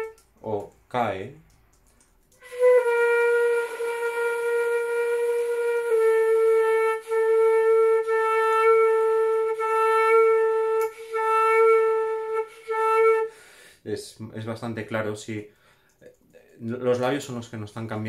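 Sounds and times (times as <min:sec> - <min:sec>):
flute holding a long tone: 0:00.0 - 0:00.2, 0:02.4 - 0:13.4
breath hiss: 0:13.3 - 0:13.9.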